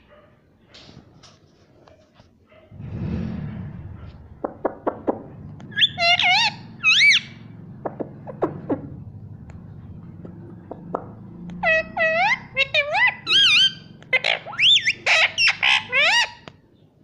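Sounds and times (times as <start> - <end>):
parakeet squawking: 5.6 - 9.0, 10.7 - 16.5
parakeet chirping: 5.6 - 9.1, 9.8 - 16.4.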